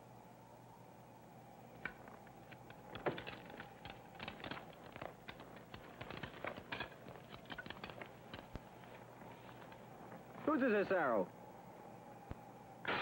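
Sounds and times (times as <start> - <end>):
tape hiss and hum: 0.0 - 13.0
footsteps crunching through snow: 8.0 - 11.0.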